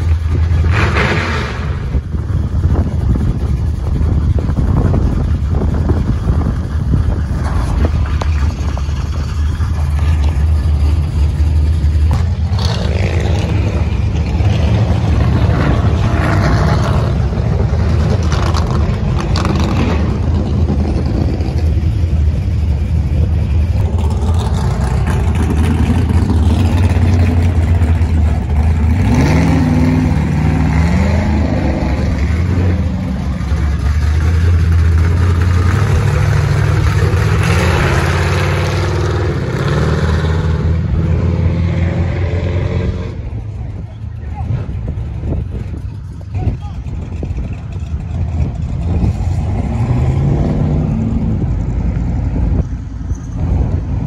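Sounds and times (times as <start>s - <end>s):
vehicles accelerating past: 0.0s - 54.0s
engine revving up: 7.4s - 21.8s, 23.8s - 45.0s, 48.0s - 52.6s.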